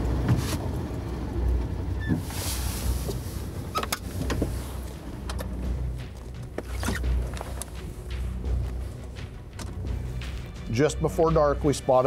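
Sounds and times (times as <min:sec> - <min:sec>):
vehicle cab rumble: 0:00.0 - 0:11.5
sharp clicks and knocks: 0:09.5 - 0:09.8.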